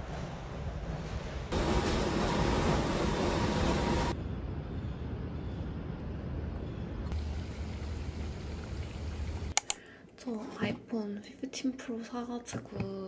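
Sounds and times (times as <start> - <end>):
distant traffic rumble: 4.1 - 9.5.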